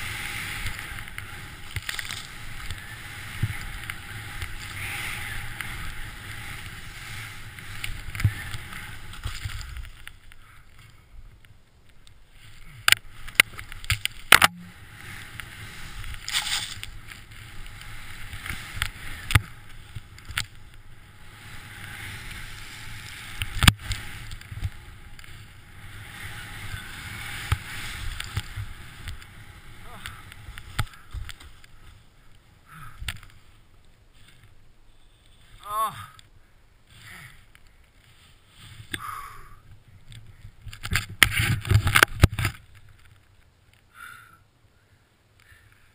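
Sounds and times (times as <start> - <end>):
snowboard hissing through powder: 0.0 - 9.8, 21.1 - 30.3.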